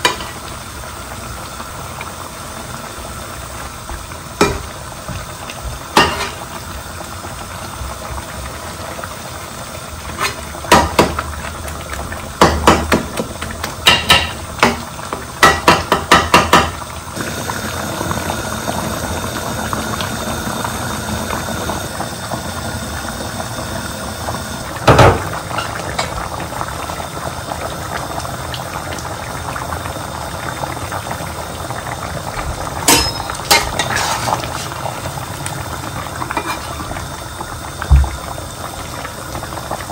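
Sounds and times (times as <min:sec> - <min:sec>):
curry bubbling at a boil: 0:00.0 - 0:39.9
metal spatula scraping pan: 0:33.0 - 0:34.3.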